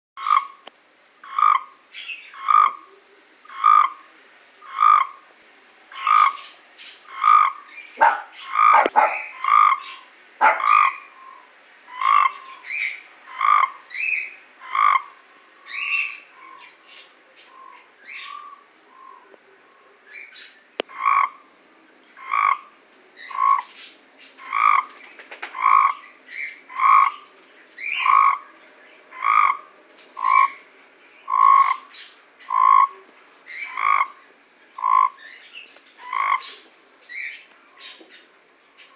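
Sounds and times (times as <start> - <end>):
toad croaking: 0.2 - 2.9, 3.5 - 4.0, 4.6 - 5.2, 5.9 - 6.4, 7.1 - 11.2, 11.9 - 12.4, 13.3 - 13.8, 14.6 - 15.2, 20.8 - 21.4, 22.2 - 22.7, 23.3 - 23.7, 24.4 - 24.9, 25.5 - 26.0, 26.7 - 27.2, 27.9 - 28.4, 29.1 - 30.6, 31.3 - 31.9, 32.5 - 34.2, 34.8 - 35.2, 36.0 - 36.6.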